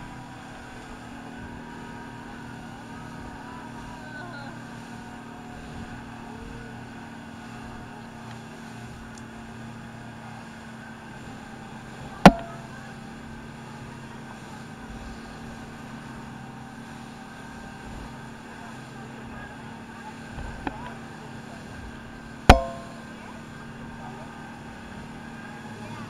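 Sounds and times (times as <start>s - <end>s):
speedboat engine running: 0.0s - 26.0s
water rushing along hull: 0.0s - 26.0s
sharp knock: 12.3s - 12.6s, 22.5s - 23.0s.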